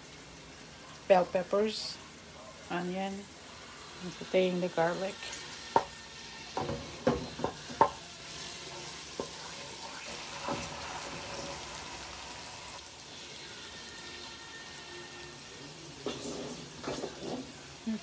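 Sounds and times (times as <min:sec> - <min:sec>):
garlic sizzling in a frying pan: 0:00.0 - 0:18.0
spoon knocking against pan: 0:05.7 - 0:05.9, 0:06.6 - 0:08.0.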